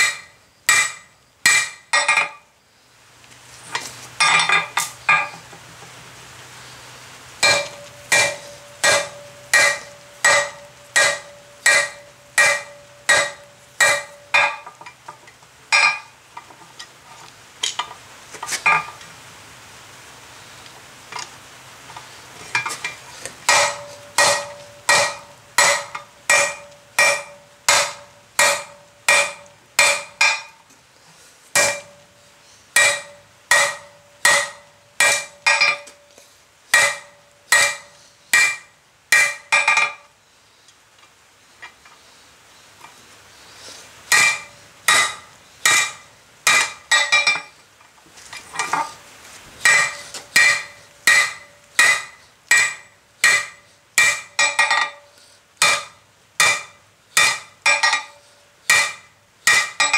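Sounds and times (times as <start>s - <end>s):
hammer striking steel on anvil: 0.0s - 2.4s, 4.2s - 5.4s, 7.4s - 14.8s, 15.7s - 16.1s, 22.6s - 30.6s, 31.6s - 32.0s, 32.8s - 36.0s, 36.7s - 40.1s, 44.1s - 47.5s, 49.6s - 59.9s.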